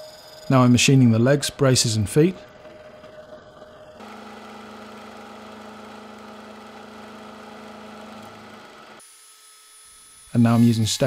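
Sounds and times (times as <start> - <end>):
milling machine humming: 1.9 - 9.1.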